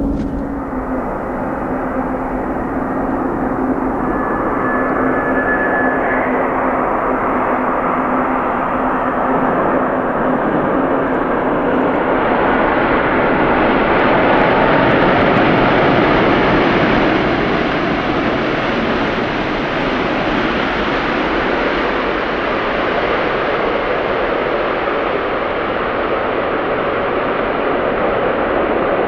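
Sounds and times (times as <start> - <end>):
jet airliner passing: 0.0 - 19.8.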